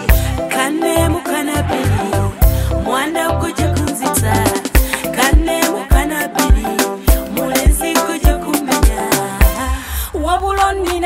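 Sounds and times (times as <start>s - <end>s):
music with kick-drum beat: 0.0s - 2.7s, 3.8s - 9.8s.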